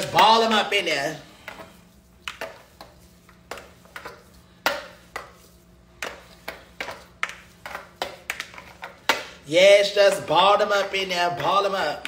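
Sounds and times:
hands slapping ground meat: 0:01.5 - 0:09.4.

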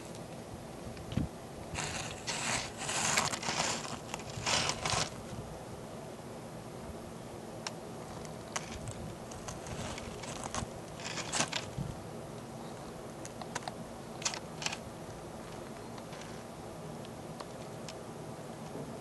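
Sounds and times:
low background hiss: 0:00.0 - 0:19.0
small dry clicks: 0:12.4 - 0:16.4, 0:17.0 - 0:18.0.

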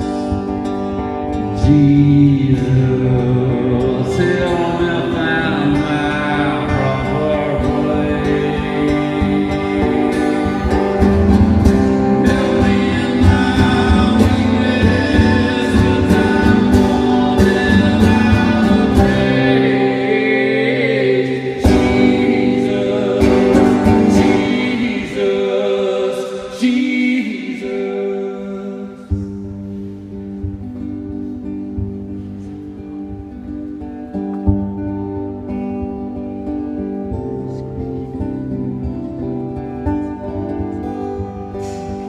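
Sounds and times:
man singing: 0:00.0 - 0:29.8
strummed acoustic guitar: 0:00.0 - 0:42.0.

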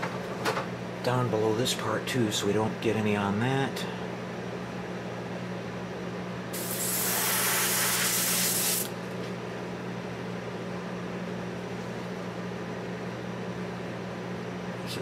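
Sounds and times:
steady low hum: 0:00.0 - 0:15.0
airbrush spraying hiss: 0:06.6 - 0:08.9.

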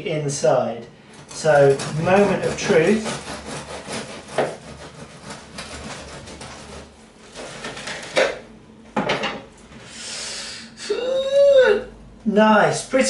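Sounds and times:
knife sawing crusty bread: 0:01.2 - 0:08.2.

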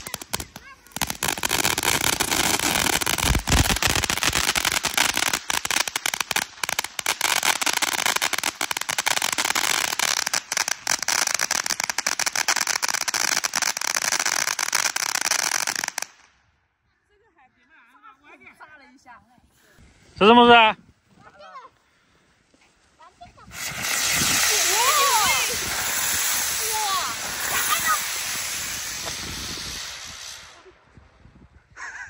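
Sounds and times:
fireworks crackling: 0:00.0 - 0:16.3, 0:23.2 - 0:30.9.

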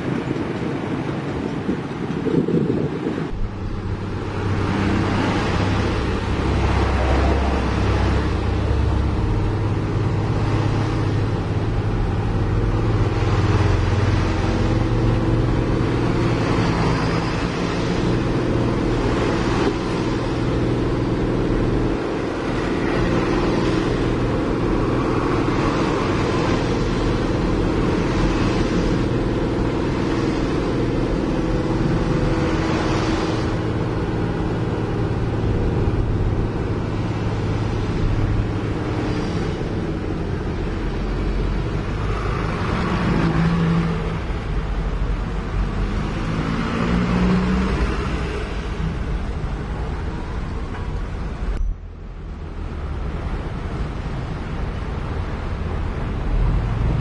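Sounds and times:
truck engine running: 0:00.0 - 0:43.2
tyres on gravel road: 0:00.0 - 0:57.0.

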